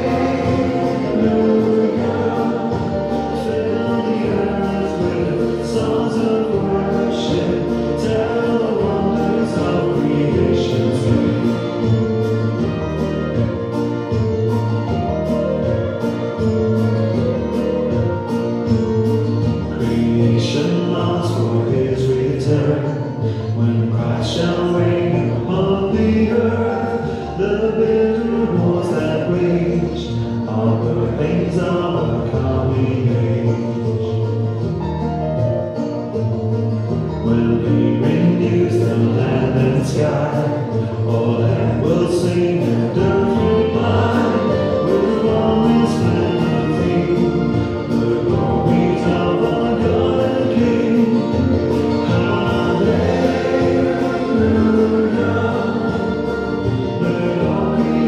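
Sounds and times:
group singing a hymn: 0.0 - 12.5, 37.3 - 58.0
instrumental accompaniment: 0.0 - 58.0.

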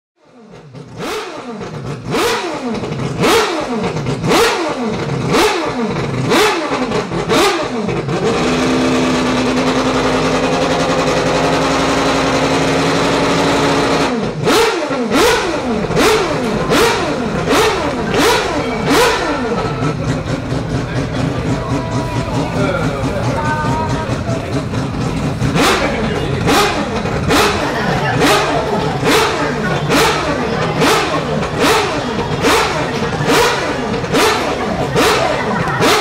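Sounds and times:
rotary engine revving: 0.2 - 36.0.

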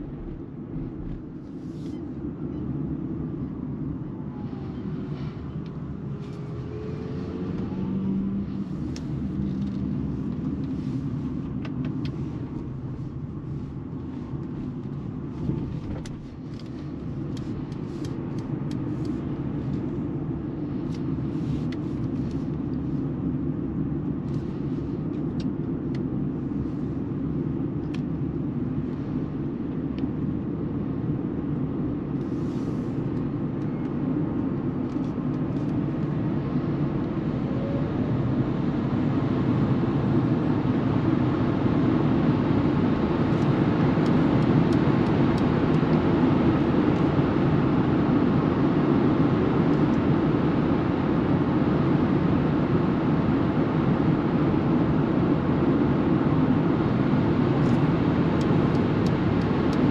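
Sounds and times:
tyre and road noise in car cabin: 0.0 - 59.9.

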